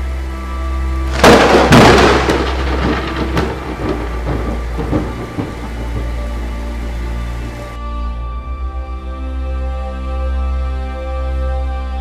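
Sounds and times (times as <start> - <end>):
thunder crack and rumble: 1.1 - 7.5.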